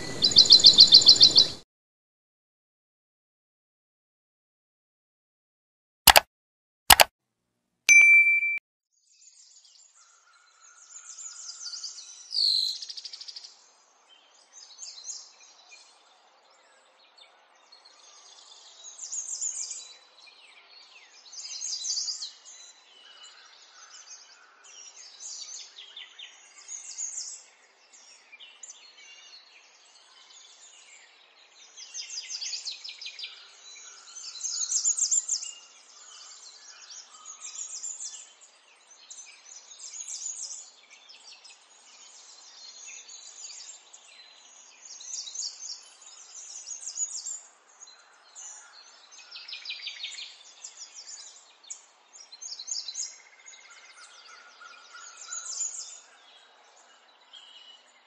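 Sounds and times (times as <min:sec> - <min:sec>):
small birds chirping: 0:00.0 - 0:01.6
click: 0:06.1 - 0:06.3
short bell-like ding: 0:07.9 - 0:08.6.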